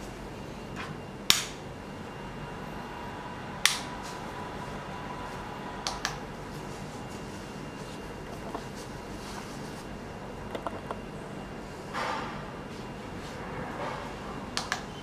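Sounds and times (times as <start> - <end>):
rocker switches clicking: 5.8 - 6.2, 14.6 - 14.9.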